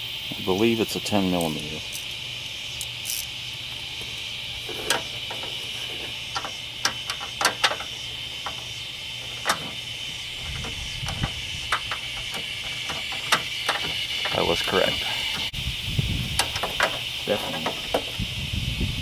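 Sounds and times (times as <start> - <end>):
crickets chirring: 0.0 - 19.0
wrench clicking and tapping: 6.3 - 8.6, 10.5 - 14.4.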